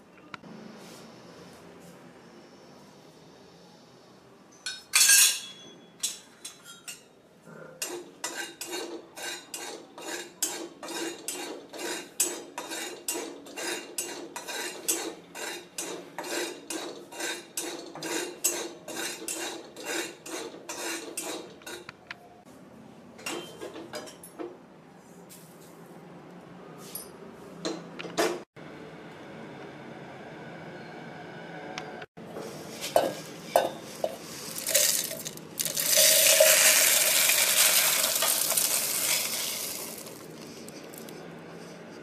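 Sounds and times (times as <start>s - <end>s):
metal spatula scraping salt in pan: 8.2s - 21.8s, 32.4s - 42.0s.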